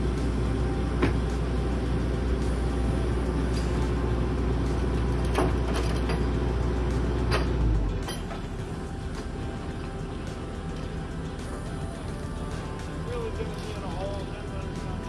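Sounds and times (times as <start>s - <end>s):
heavy machine engine rumbling: 0.0s - 15.0s
chains clinking: 3.4s - 4.0s, 4.6s - 6.3s, 7.3s - 8.6s, 12.9s - 14.7s.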